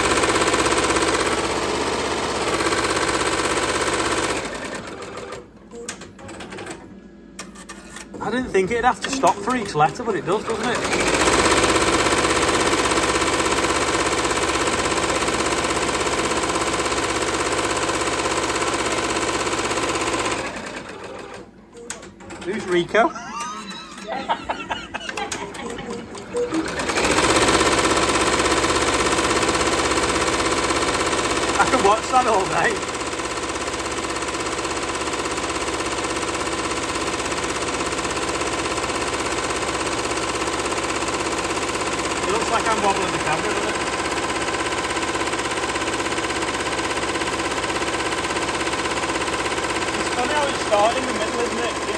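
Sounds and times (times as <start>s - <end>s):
embroidery machine stitching: 0.0s - 24.1s, 25.0s - 51.9s.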